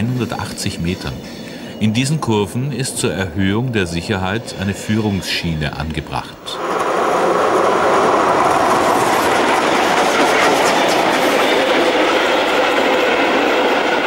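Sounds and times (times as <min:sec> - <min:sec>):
train wheels clattering over rail joints: 0:06.6 - 0:14.0.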